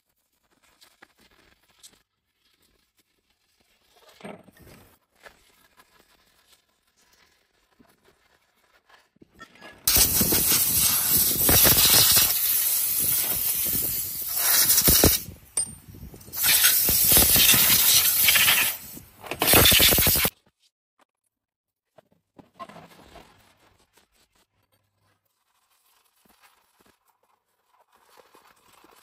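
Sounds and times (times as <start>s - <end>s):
hissing high-pressure spray: 9.9s - 15.3s, 16.3s - 20.3s.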